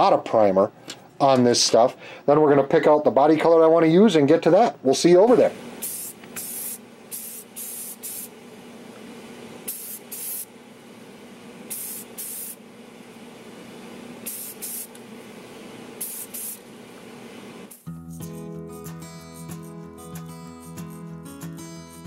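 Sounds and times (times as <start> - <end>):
steady hum: 4.7 - 17.9
spray can hissing bursts: 5.8 - 8.4, 9.6 - 10.5, 11.7 - 12.6, 14.2 - 15.0, 16.0 - 16.6, 17.6 - 17.9.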